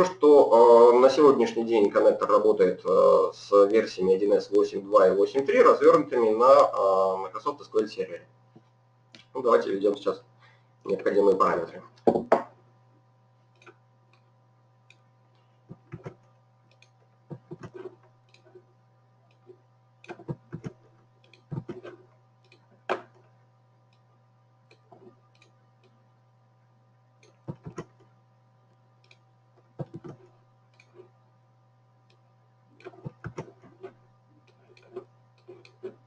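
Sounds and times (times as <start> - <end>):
faint electrical hum: 0.0 - 36.0
computer mouse clicks: 13.5 - 18.6, 19.3 - 23.2, 23.9 - 26.0, 27.2 - 28.1, 29.0 - 29.2, 29.8 - 31.1, 32.8 - 36.0
keyboard keystrokes: 27.2 - 28.0, 29.8 - 30.2.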